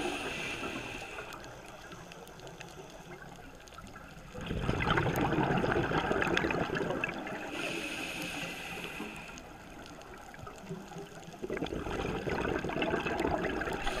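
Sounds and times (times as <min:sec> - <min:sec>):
regulator inhalation hiss: 0:00.0 - 0:03.1, 0:07.4 - 0:09.7
underwater exhaled air bubbling: 0:00.0 - 0:14.0.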